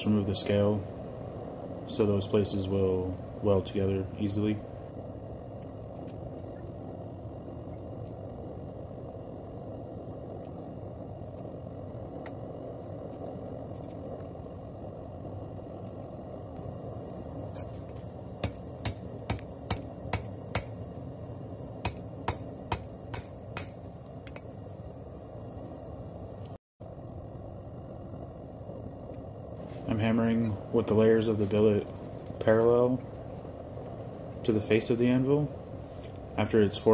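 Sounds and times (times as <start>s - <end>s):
low rushing noise: 0.0s - 36.9s
hammer striking hot steel: 18.4s - 20.8s, 21.8s - 24.5s.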